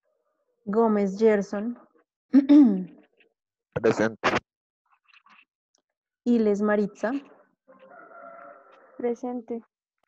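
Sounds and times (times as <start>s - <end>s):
person saying a word: 3.8s - 4.4s.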